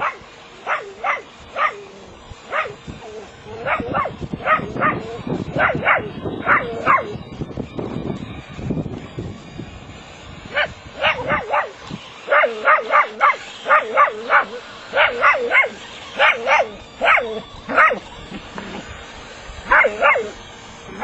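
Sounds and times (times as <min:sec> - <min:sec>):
dog barking in high yips: 0:00.0 - 0:01.9, 0:02.5 - 0:02.8, 0:03.6 - 0:05.0, 0:05.6 - 0:07.2, 0:12.3 - 0:18.0, 0:19.7 - 0:20.3.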